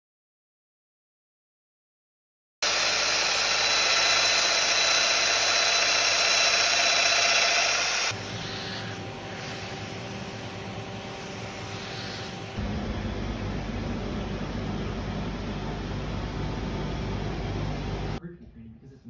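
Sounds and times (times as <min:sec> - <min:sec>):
power tool motor whine cutting wood: 0:02.6 - 0:10.0.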